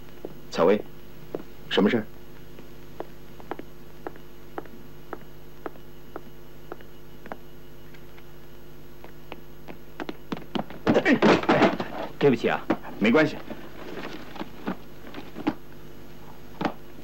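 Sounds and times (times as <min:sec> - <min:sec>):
steady low hum: 0:00.0 - 0:17.0
heels clicking on hard floor: 0:02.5 - 0:07.5.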